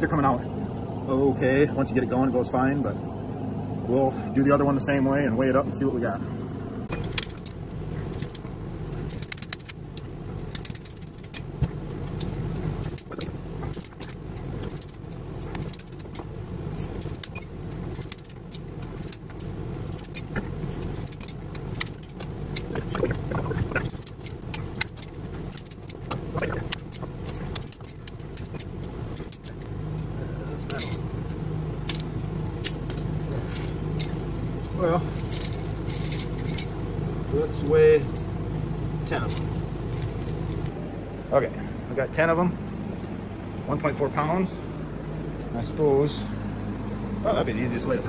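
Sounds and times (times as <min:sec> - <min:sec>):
steady low hum: 0:00.0 - 0:48.0
metallic clinks and scrapes: 0:06.9 - 0:40.7.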